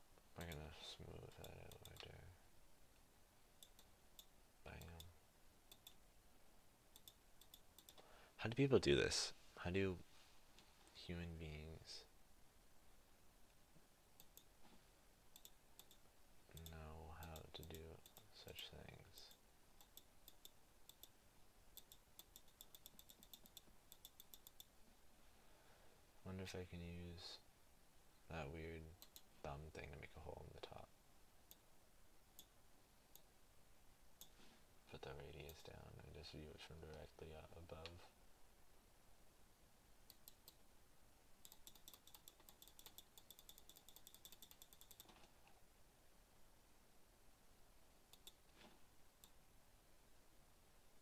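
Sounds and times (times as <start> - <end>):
computer mouse clicking: 1.4 - 2.1, 3.6 - 5.1, 5.7 - 6.0, 7.0 - 8.0, 14.2 - 14.5, 15.4 - 16.0, 16.6 - 18.3, 19.2 - 21.2, 21.8 - 24.7, 29.0 - 29.3, 40.1 - 40.6, 41.4 - 45.2, 48.1 - 48.4
rapid computer clicking: 21.8 - 24.7, 41.4 - 45.1.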